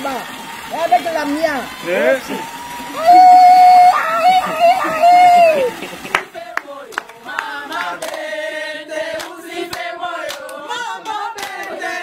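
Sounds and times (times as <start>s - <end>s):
hand claps: 4.8s - 8.3s, 9.1s - 11.9s
group singing in chorus: 6.0s - 12.0s.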